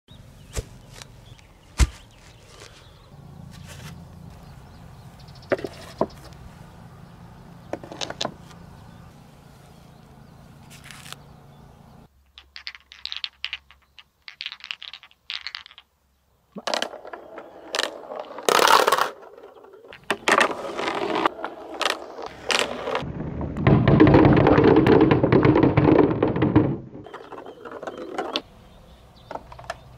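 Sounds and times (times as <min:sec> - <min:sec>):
balls clattering on wooden track: 0:05.5 - 0:06.4, 0:07.7 - 0:08.6, 0:12.2 - 0:15.9, 0:16.6 - 0:28.5, 0:29.3 - 0:29.9
glass balls clicking together: 0:12.2 - 0:15.9.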